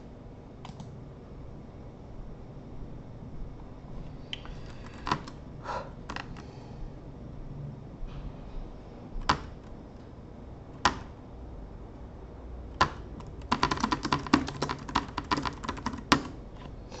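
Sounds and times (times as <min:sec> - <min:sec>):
typing on keyboard: 0:00.6 - 0:00.9, 0:12.8 - 0:16.7
keyboard key clicks: 0:09.2 - 0:09.7, 0:10.8 - 0:11.1, 0:12.7 - 0:16.4.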